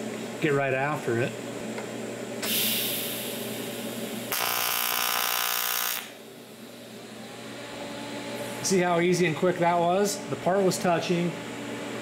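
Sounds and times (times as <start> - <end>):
welding arc hissing and buzzing: 2.4 - 6.2.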